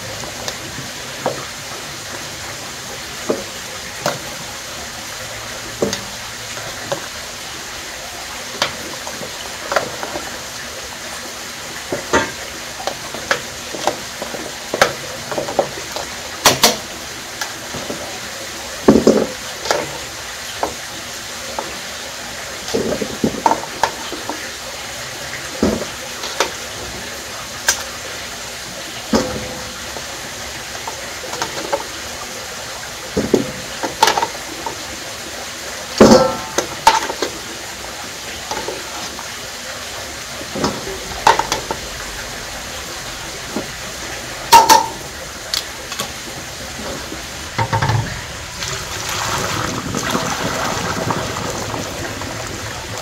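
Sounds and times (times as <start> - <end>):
steady cooking hiss: 0.0 - 53.0
utensil clinking against cookware: 44.5 - 45.1.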